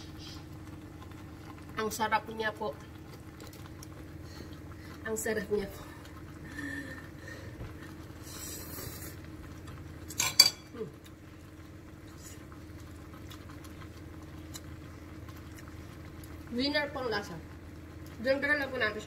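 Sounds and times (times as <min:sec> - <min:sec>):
steady low hum: 0:00.0 - 0:19.0
metal fork clinking: 0:10.2 - 0:10.7.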